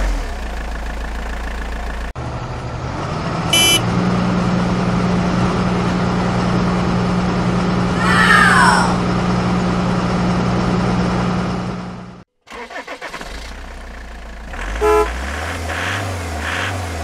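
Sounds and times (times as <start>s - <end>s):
truck engine humming: 0.0s - 12.2s
low engine rumble: 0.0s - 12.3s
truck horn toot: 3.5s - 3.9s, 14.8s - 15.3s.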